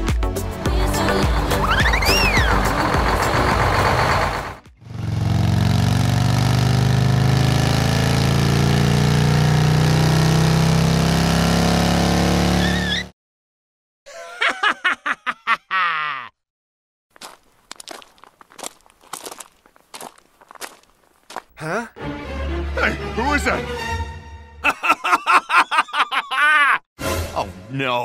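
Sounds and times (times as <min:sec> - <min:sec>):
music: 0:00.0 - 0:03.6, 0:22.0 - 0:24.6, 0:27.0 - 0:28.0
engine droning: 0:01.0 - 0:13.0.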